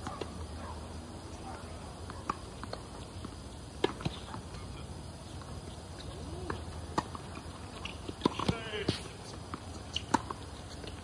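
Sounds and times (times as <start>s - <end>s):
tennis ball bouncing on court: 2.0s - 4.7s, 5.3s - 11.0s
tennis ball hit by racquet: 2.1s - 4.6s, 6.0s - 11.0s.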